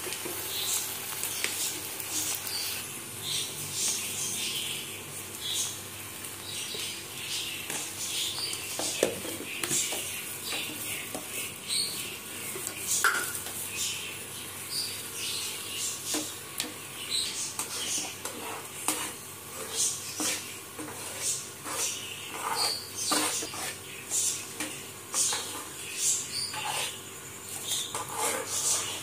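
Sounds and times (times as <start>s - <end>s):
okra sizzling in a frying pan: 0.0s - 29.0s.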